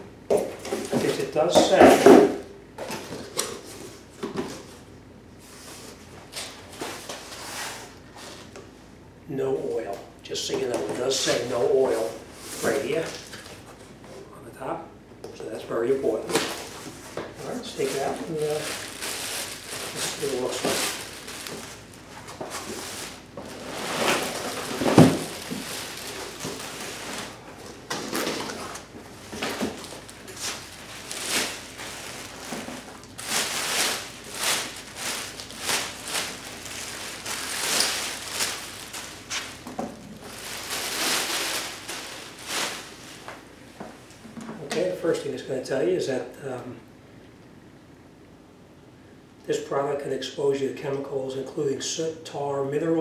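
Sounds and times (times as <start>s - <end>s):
cardboard rustling and scraping: 16.2s - 43.3s.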